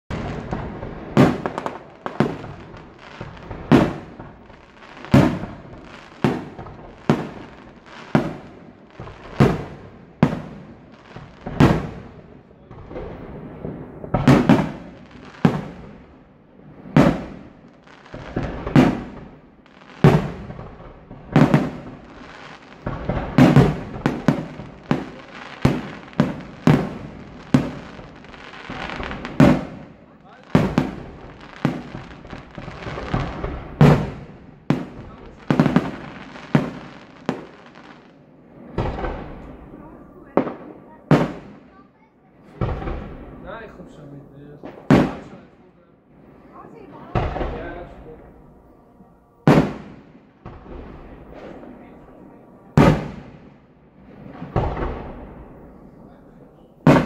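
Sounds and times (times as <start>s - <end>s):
firework shells bursting: 16.9s - 38.0s, 52.8s - 55.7s, 56.8s - 57.0s.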